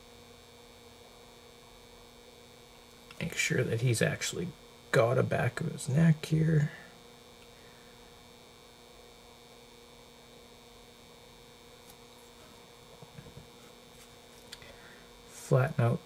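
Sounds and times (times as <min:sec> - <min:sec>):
faint electrical hum: 0:00.0 - 0:16.0
low hiss: 0:02.8 - 0:08.3.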